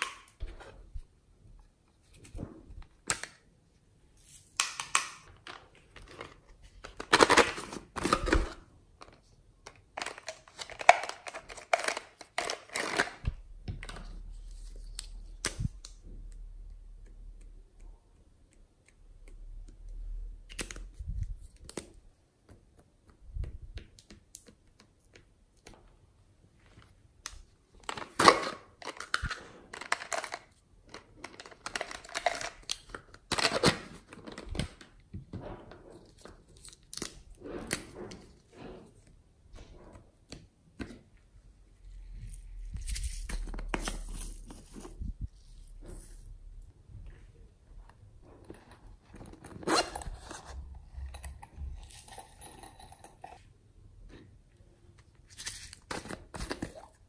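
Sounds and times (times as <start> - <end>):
plastic markers rattling: 28.8 - 33.2.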